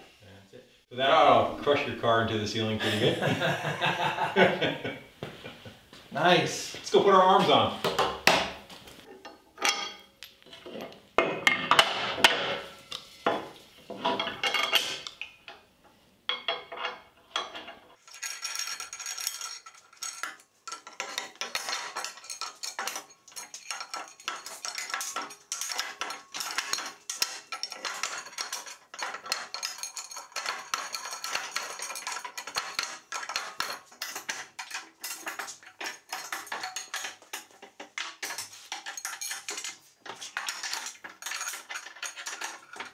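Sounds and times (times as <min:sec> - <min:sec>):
steel parts clinking and clanking: 0:07.2 - 0:15.7, 0:16.3 - 0:42.9
fast metallic rattling: 0:18.0 - 0:42.9.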